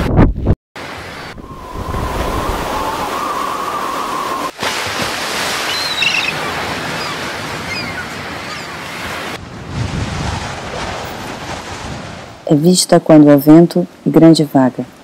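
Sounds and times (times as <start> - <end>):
ocean waves breaking on rocks: 0.8 - 12.5.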